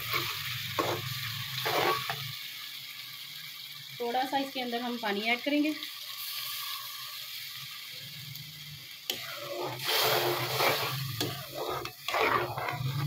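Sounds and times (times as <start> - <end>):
metal spoon stirring sauce in pot: 9.1 - 13.0.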